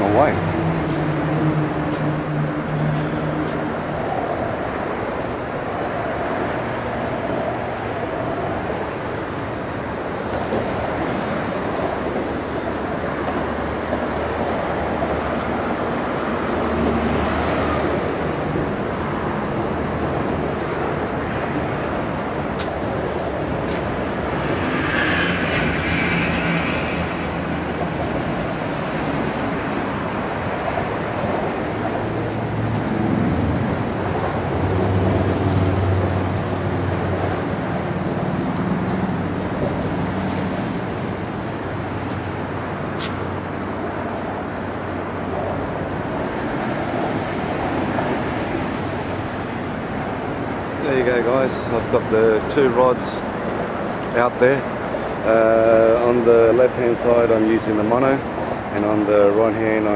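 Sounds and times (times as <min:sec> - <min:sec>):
traffic rumble on bridge: 0:00.0 - 0:59.9.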